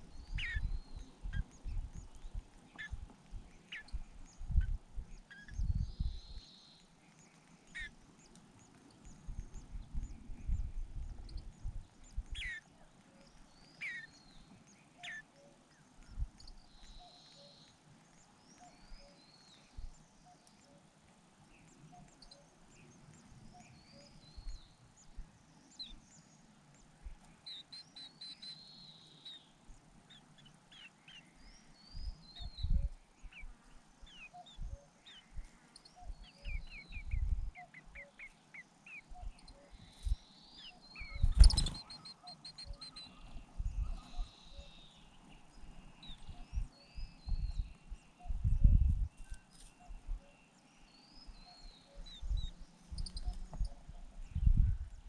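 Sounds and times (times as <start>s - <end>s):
birds chirping and twittering: 0.0s - 55.0s.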